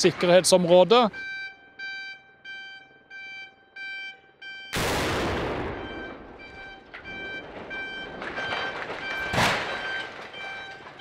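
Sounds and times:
explosive blast rumble: 4.8s - 10.0s
tower crashing to ground: 4.8s - 11.0s
repeating electronic beeps: 5.7s - 10.7s.

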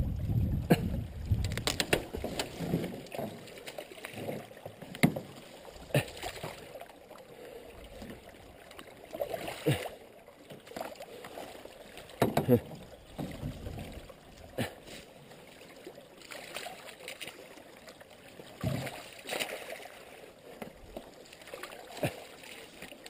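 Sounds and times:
canoe knocking on branches: 4.9s - 5.4s, 12.2s - 12.6s.

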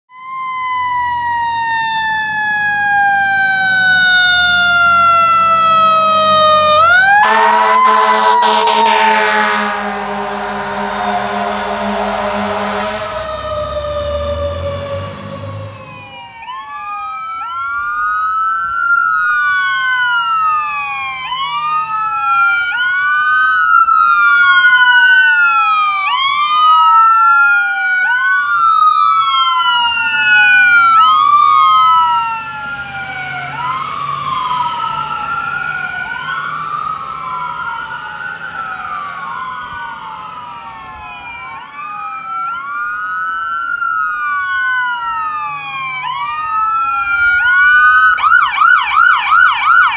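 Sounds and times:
ambulance siren wailing: 0.1s - 49.9s
vehicle engine drone: 0.7s - 16.6s, 28.0s - 42.9s.

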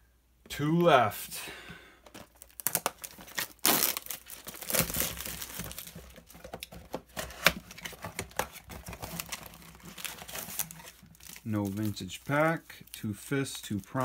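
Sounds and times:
plastic shrink wrap crinkling: 2.0s - 14.0s.

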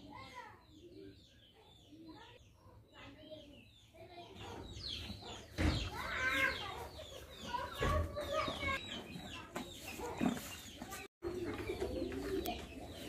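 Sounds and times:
chickens clucking: 4.1s - 13.0s.

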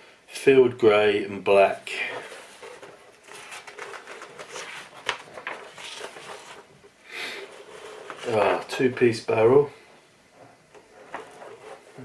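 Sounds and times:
paper pages rustling: 2.0s - 8.9s, 10.8s - 12.0s.

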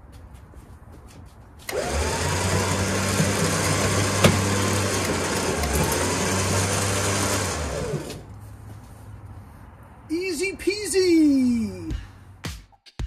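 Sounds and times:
electric winch motor whining: 1.7s - 8.3s.

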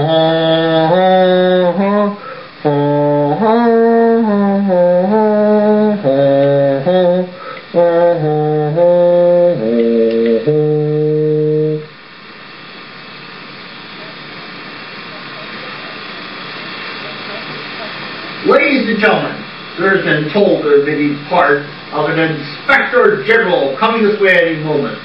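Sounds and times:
chant-like hummed melody: 0.0s - 11.9s
background hiss: 0.0s - 25.0s.

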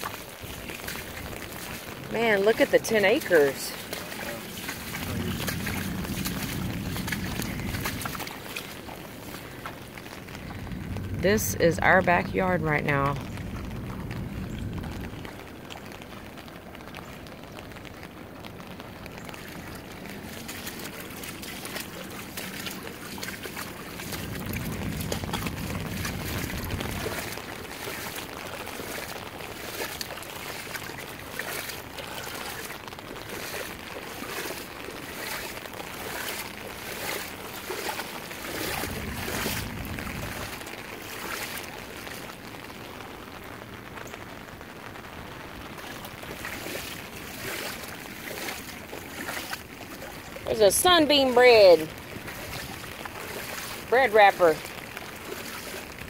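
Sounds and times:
wind buffeting microphone: 0.0s - 16.4s, 17.9s - 41.5s
footsteps splashing through water: 0.0s - 43.4s, 44.0s - 56.0s.

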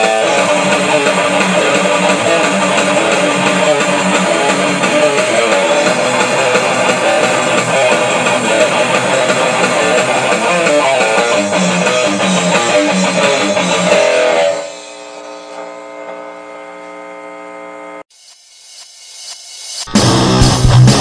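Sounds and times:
metal song with electric guitars: 0.0s - 14.9s, 19.9s - 21.0s.

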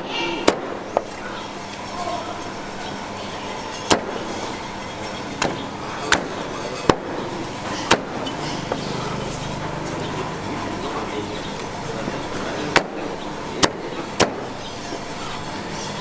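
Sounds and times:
cleaver chopping on wooden block: 7.8s - 8.8s, 13.6s - 14.5s.

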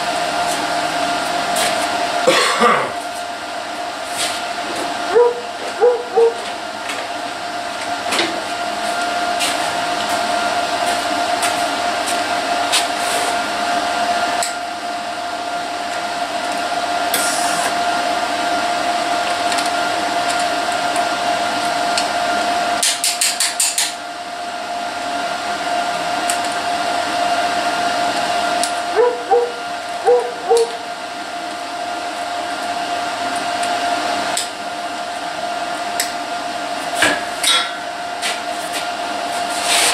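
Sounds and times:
welder hum and hiss: 14.4s - 37.5s.

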